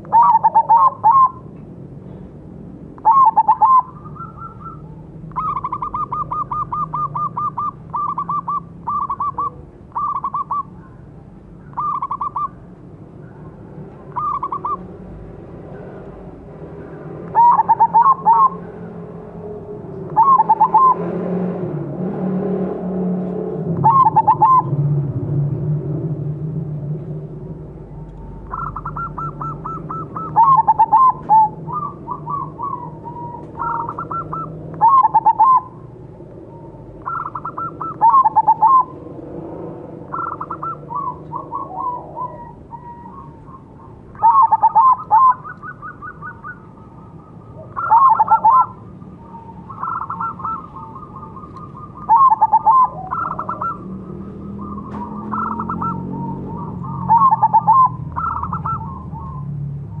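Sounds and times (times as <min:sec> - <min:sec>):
dove cooing: 0:00.0 - 0:01.5, 0:03.0 - 0:15.0, 0:16.8 - 0:19.0, 0:19.7 - 0:21.2, 0:23.8 - 0:24.9, 0:27.9 - 1:00.0
distant dove calls: 0:00.0 - 0:25.4, 0:27.0 - 1:00.0.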